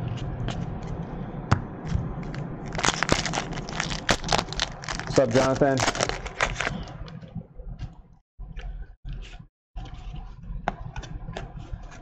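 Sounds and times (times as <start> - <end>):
trading cards rustling and sliding: 2.2 - 7.0.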